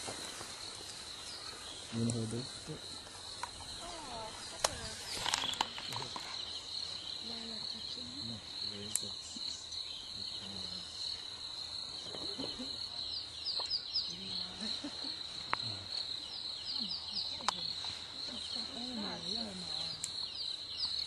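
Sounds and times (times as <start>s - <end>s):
quiet voices murmuring: 3.6s - 11.1s, 14.0s - 20.2s.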